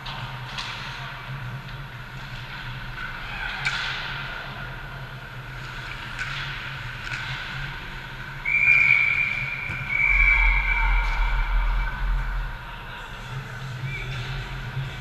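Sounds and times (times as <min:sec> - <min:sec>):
ice rink background noise: 0:00.0 - 0:15.0
referee whistle blasts: 0:08.4 - 0:11.9.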